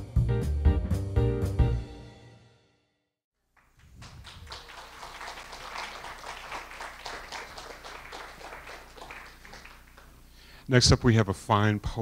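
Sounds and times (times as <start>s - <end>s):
audience applauding: 3.5s - 10.2s.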